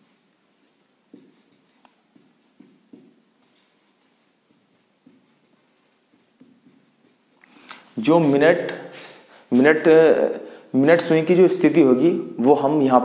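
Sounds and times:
marker writing on whiteboard: 0.0s - 9.9s.

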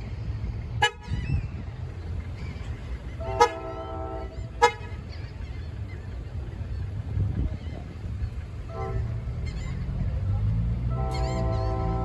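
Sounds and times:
train air horn: 3.2s - 4.9s, 8.7s - 9.2s, 10.9s - 12.0s.

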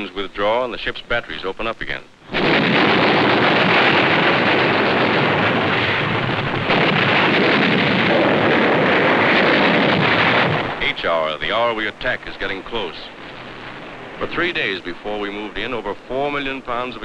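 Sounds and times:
shells bursting: 2.2s - 17.0s
ships' guns firing: 2.3s - 12.9s.

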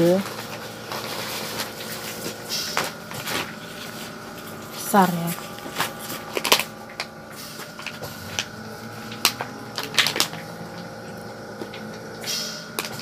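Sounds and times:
faint machine hum: 0.0s - 13.0s
plastic bag rustling: 0.1s - 6.8s.

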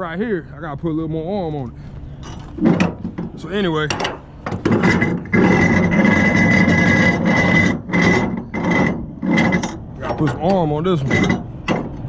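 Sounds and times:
strap winch being cranked: 3.8s - 12.0s.

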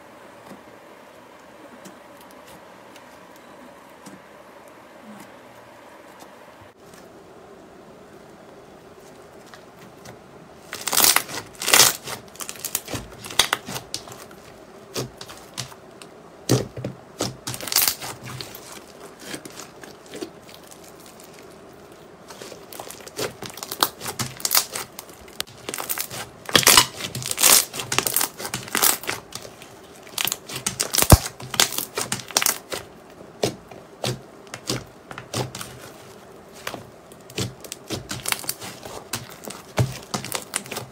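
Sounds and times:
slime crackling and popping: 10.6s - 40.9s.

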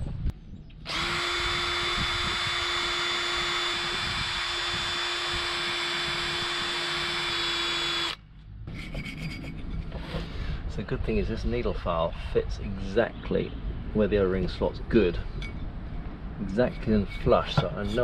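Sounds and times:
cordless drill running: 0.9s - 8.2s.

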